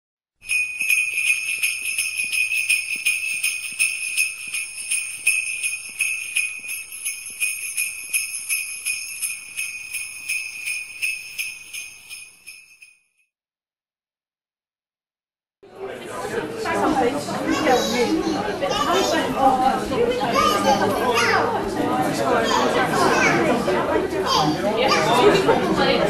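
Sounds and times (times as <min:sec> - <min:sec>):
sleigh bells shaken: 0:00.4 - 0:13.0.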